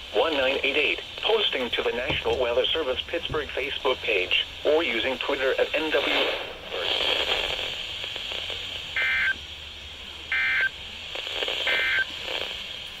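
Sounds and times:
radio hiss: 0.0 - 13.0.

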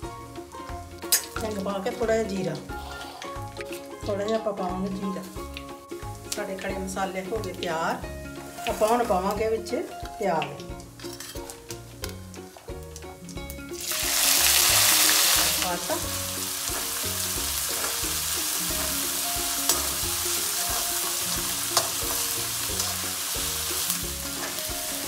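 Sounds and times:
onions sizzling in hot oil: 0.2 - 25.0
spoon clicking against pan: 20.7 - 23.0.

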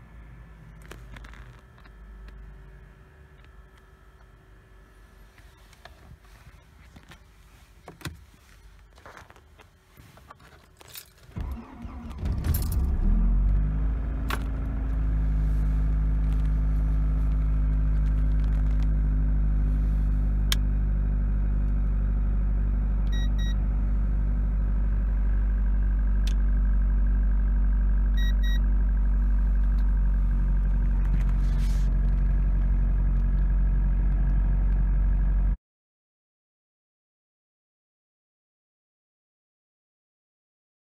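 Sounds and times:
car engine starting and idling: 11.2 - 35.6.

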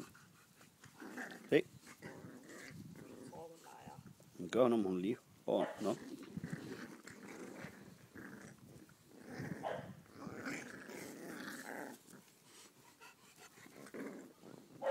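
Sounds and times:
puppies growling: 0.8 - 3.5, 5.8 - 14.9.

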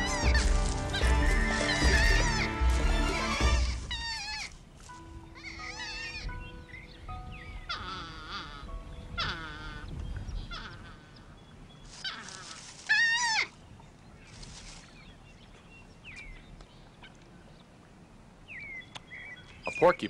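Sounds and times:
porcupines whining cries: 0.0 - 13.6.

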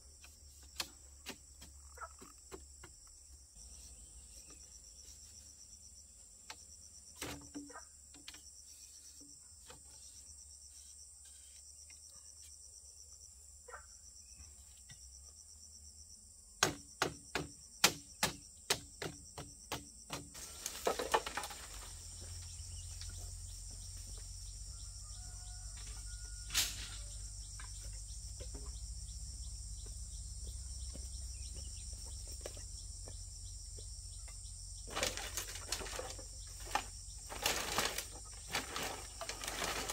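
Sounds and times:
insects droning: 0.0 - 39.9
sharp knocks on bamboo: 16.6 - 21.8.

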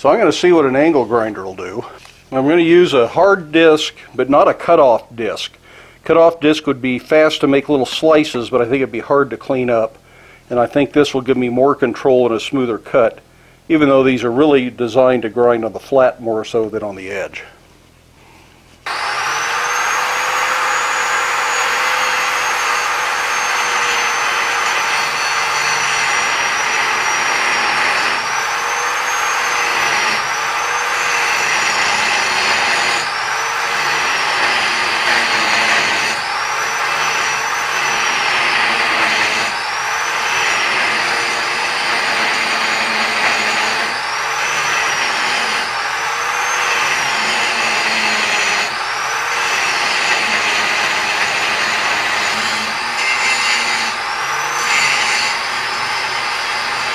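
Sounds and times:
angle grinder grinding steel: 18.8 - 56.9.

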